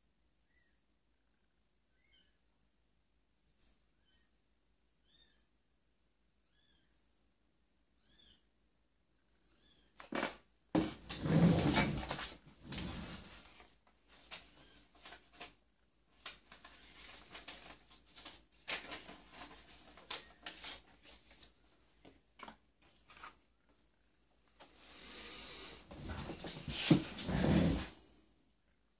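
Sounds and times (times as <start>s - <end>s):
paper rustling: 10.0s - 23.8s.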